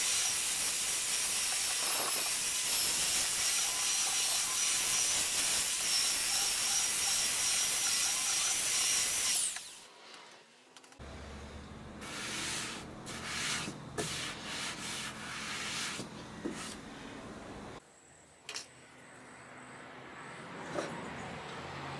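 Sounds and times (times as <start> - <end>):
hand sanding wood: 12.0 - 16.8.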